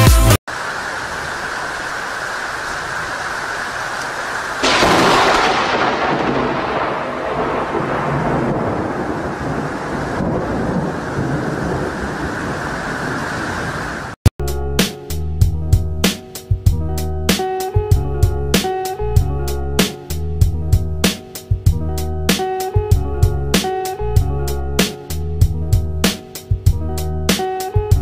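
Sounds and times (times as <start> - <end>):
rainstorm: 0.5 - 14.2
thunder rumbling: 4.6 - 14.2.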